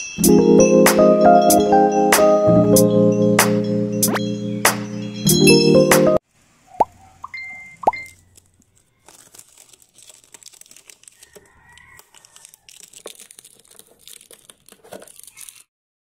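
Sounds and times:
plastic box crinkling and clicking: 8.0s - 15.7s.

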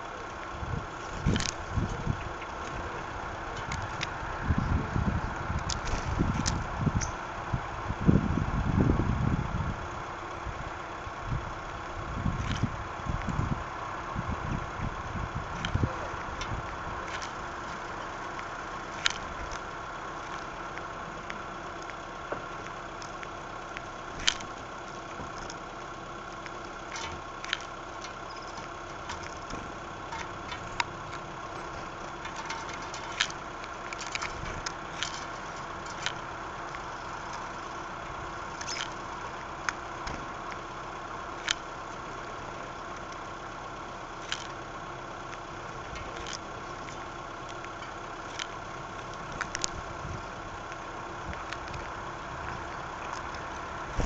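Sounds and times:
electrical hum: 0.0s - 54.0s
bird pecking on wood: 15.6s - 37.8s.

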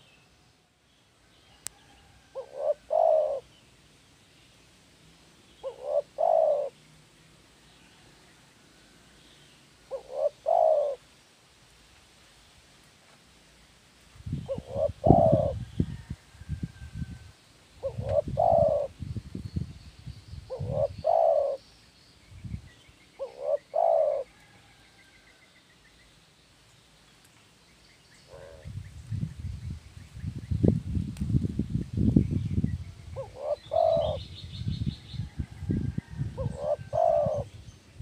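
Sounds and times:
dove cooing: 2.3s - 3.6s, 5.6s - 6.8s, 9.9s - 11.0s, 14.4s - 16.1s, 17.8s - 19.0s, 20.5s - 21.6s, 23.2s - 24.5s, 28.3s - 28.7s, 33.2s - 34.5s, 35.7s - 37.5s
small birds chirping: 2.4s - 8.1s, 9.2s - 11.0s, 14.3s - 15.8s, 17.8s - 24.2s, 32.0s - 38.0s.

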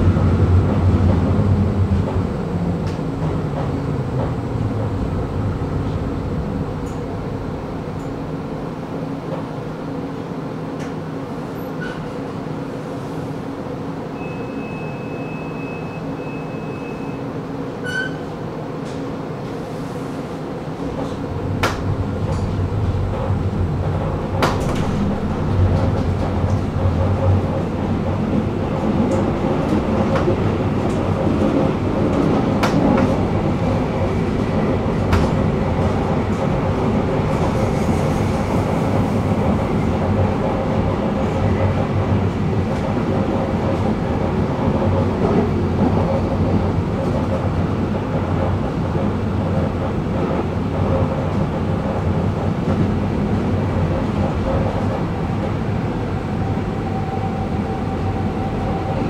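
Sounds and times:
tram electrical hum: 0.0s - 59.0s
tram motor and wheel rumble: 0.0s - 59.0s
high warning beep: 14.2s - 17.2s.

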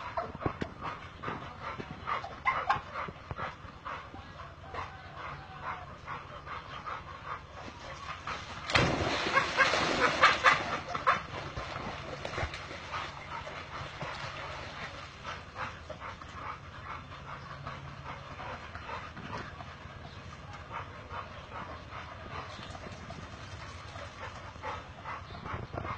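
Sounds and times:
dog splashing in muddy water: 8.5s - 15.2s.

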